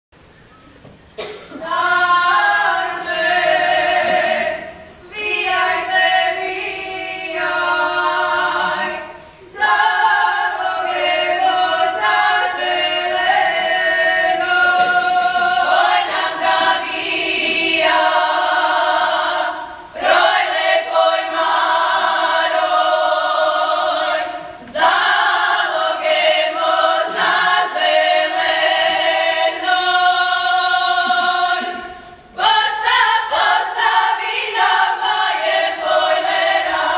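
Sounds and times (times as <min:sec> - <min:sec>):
women's choir singing: 0:01.2 - 0:36.9.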